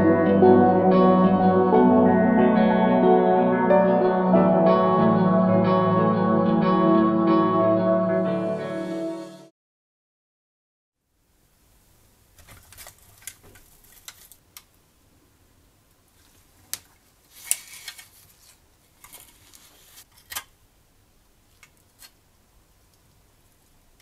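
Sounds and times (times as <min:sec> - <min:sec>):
gloved hands handling toy car: 0:12.4 - 0:14.7, 0:16.2 - 0:20.5.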